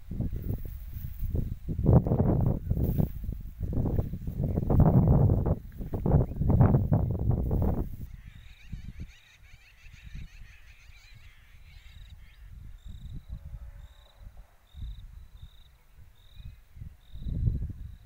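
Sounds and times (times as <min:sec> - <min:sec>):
wind gusting over microphone: 0:00.0 - 0:09.1, 0:09.9 - 0:18.0
birds twittering: 0:04.4 - 0:13.1.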